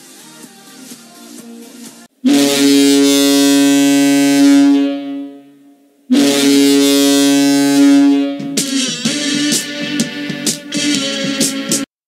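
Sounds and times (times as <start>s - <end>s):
goal horn blasts: 2.3s - 9.2s.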